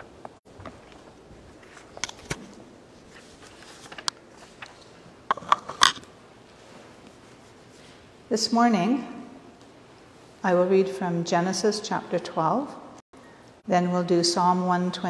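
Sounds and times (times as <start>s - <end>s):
paper rustling: 0.6s - 5.2s.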